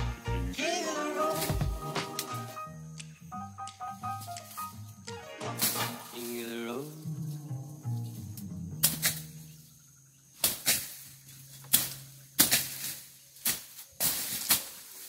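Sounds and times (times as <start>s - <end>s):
machete swishing through brush: 5.5s - 6.4s, 10.4s - 15.0s.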